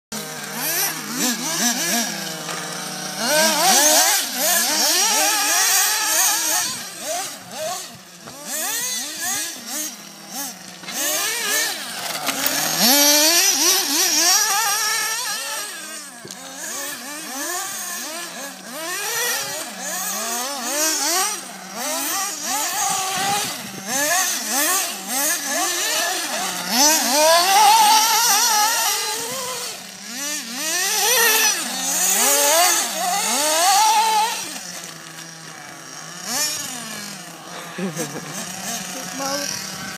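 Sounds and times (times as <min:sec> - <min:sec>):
rc car motors whining: 0:00.2 - 0:39.9.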